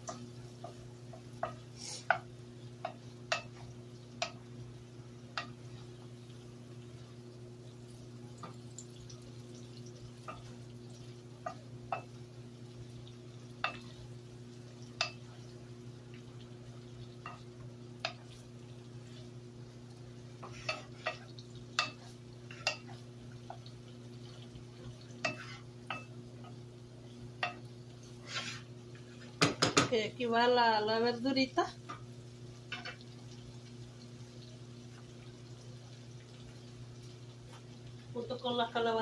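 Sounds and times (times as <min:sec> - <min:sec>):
wooden spoon scraping a skillet: 0:00.0 - 0:04.4, 0:16.9 - 0:19.4, 0:20.2 - 0:26.6, 0:27.4 - 0:29.6.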